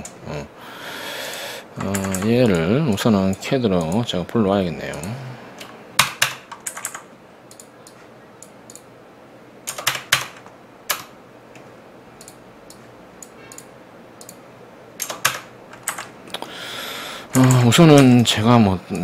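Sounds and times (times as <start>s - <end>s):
low steady hiss: 0.0s - 19.0s
keyboard and mouse clicking: 1.8s - 4.0s, 4.9s - 8.9s, 9.7s - 14.4s, 15.0s - 16.4s, 17.3s - 18.1s.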